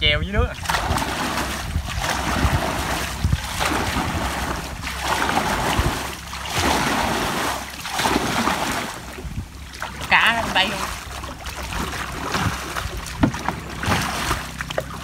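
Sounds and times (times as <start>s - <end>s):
paddle splashing muddy water: 0.5s - 15.0s
low knocks: 12.3s - 13.7s.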